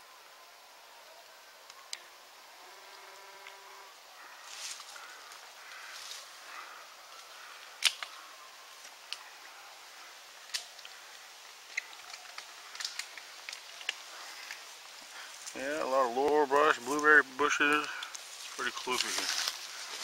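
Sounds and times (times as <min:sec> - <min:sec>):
footsteps on leaf litter and twigs: 0:04.4 - 0:06.4, 0:11.6 - 0:20.0.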